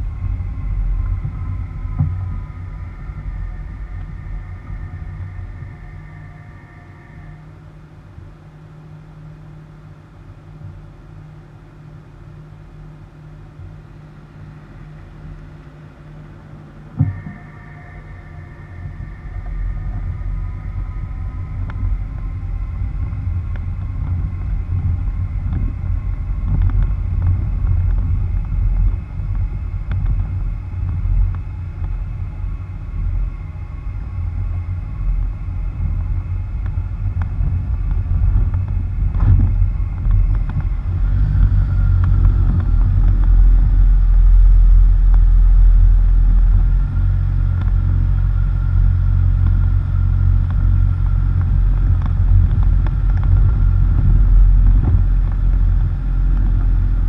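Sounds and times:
wind buffeting: 0.0 - 7.4, 16.9 - 57.0
tyres rumbling on dirt road: 34.2 - 57.0.

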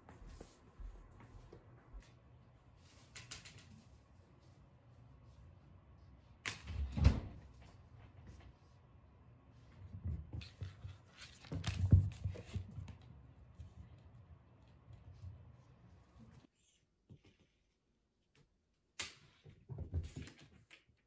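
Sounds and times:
kitten paws on wooden floor: 9.6 - 16.4.

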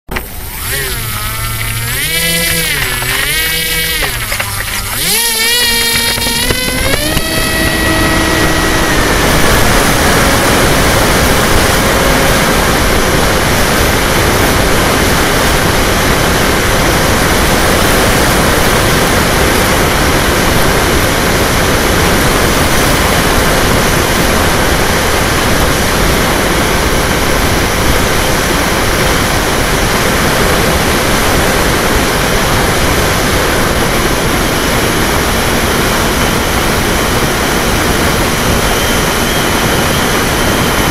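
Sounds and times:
faint whine: 0.1 - 40.9
model plane motor and propeller: 0.1 - 40.9
wind rush on microphone: 0.2 - 40.9.

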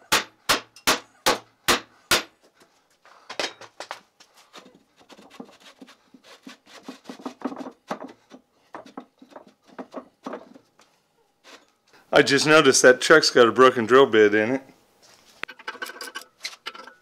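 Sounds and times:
metal scraping and clunking: 15.4 - 17.0.

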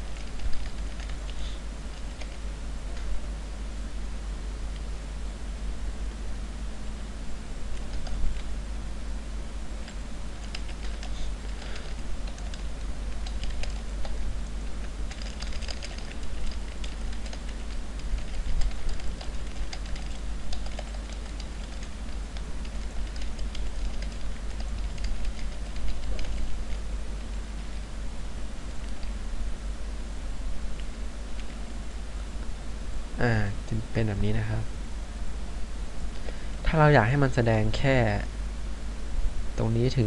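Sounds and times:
low electrical hum: 0.0 - 40.0
keyboard typing clicks: 0.1 - 3.1, 7.7 - 8.5, 9.8 - 27.3.

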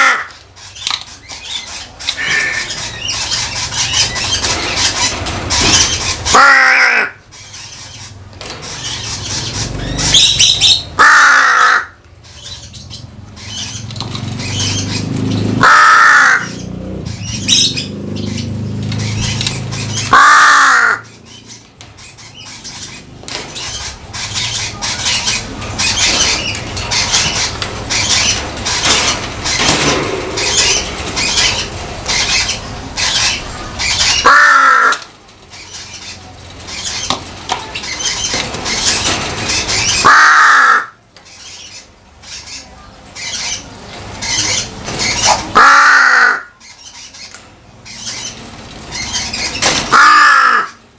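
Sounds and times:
crow cawing loudly: 0.0 - 0.4, 2.2 - 2.8, 6.3 - 7.2, 11.0 - 12.0, 15.6 - 16.6, 20.1 - 21.1, 34.1 - 35.0, 40.0 - 41.0, 45.5 - 46.6, 49.9 - 50.8.

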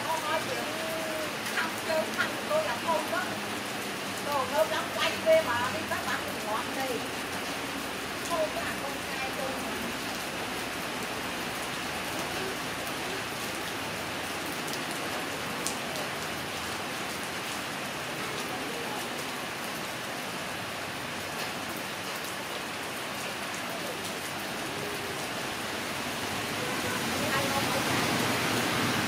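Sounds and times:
steady rain falling: 0.0 - 29.0.

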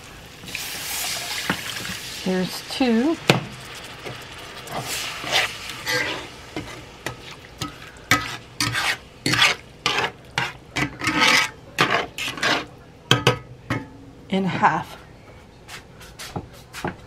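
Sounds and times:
metal spatula scraping skillet: 4.7 - 12.7.

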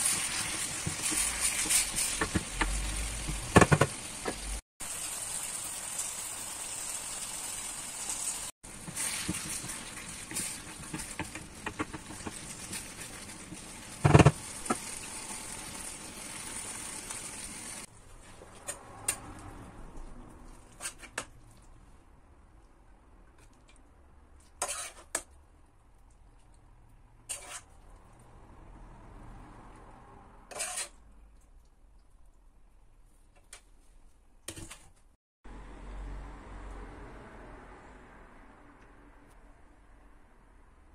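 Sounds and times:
stew sizzling in frying pan: 0.0 - 17.9
metal spoon scraping pan: 24.5 - 25.3, 27.2 - 27.8, 30.5 - 31.0.

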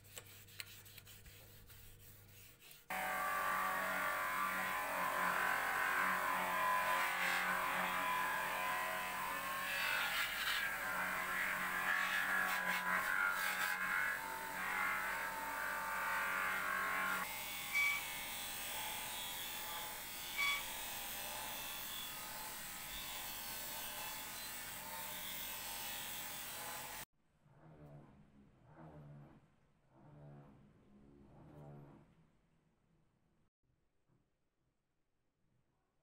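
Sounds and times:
bench grinder motor running: 2.9 - 17.4.

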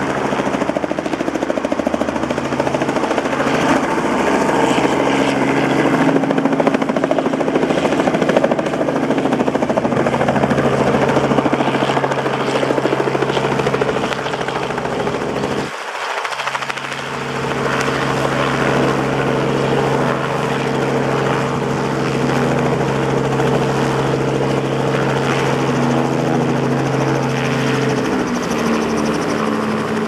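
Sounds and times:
helicopter engine and rotor running: 0.0 - 30.0.

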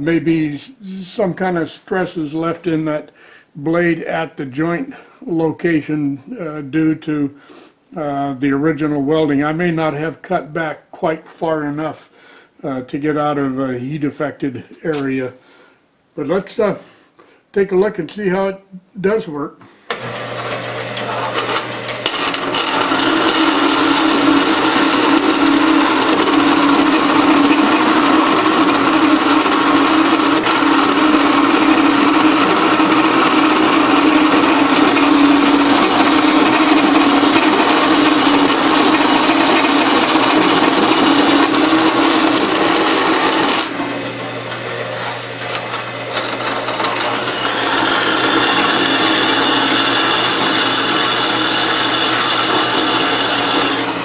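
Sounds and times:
bandsaw cutting metal: 19.9 - 54.0
saw motor low hum: 20.0 - 54.0.

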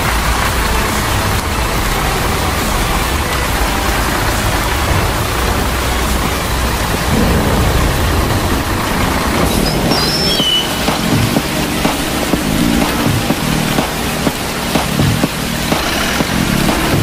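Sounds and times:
rain hissing: 0.0 - 17.0
low rumble: 1.6 - 13.8.

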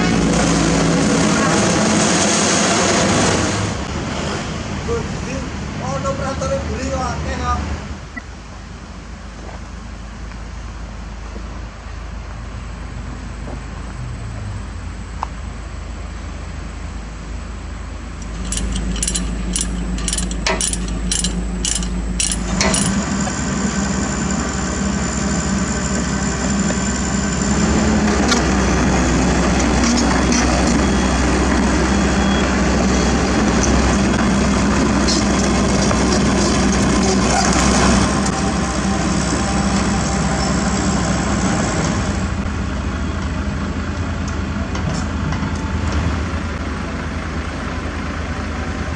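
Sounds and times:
diesel engine idling: 14.6 - 48.9.

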